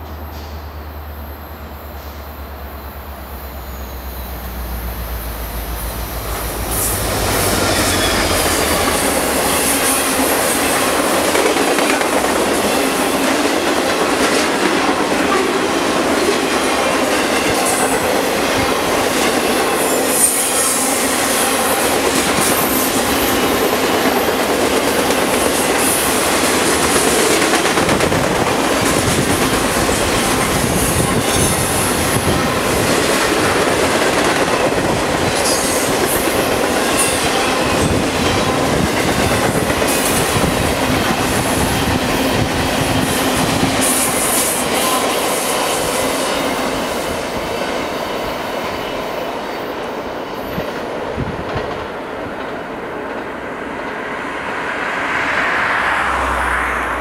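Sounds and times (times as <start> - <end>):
train wheels rumbling on rail: 0.0 - 57.0
wheel squeal: 6.6 - 10.0.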